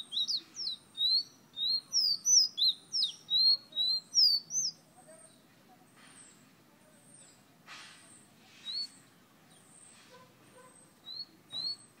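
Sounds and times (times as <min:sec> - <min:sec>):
soft hiss: 0:04.4 - 0:11.9
songbird short rising whistles: 0:08.6 - 0:09.0, 0:11.1 - 0:11.8.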